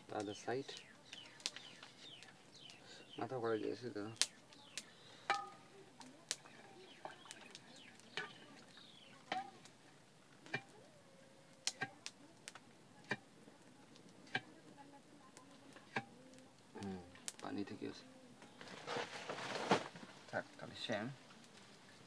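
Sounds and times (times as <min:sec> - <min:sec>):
wood fire crackling: 0:00.0 - 0:22.0
faint bird chirps: 0:00.1 - 0:09.7.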